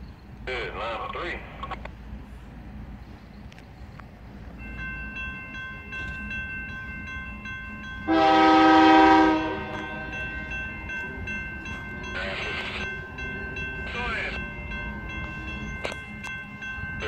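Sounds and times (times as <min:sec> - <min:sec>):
crossing warning bell ringing: 0:01.6 - 0:17.0
locomotive air horn blast: 0:08.1 - 0:10.1.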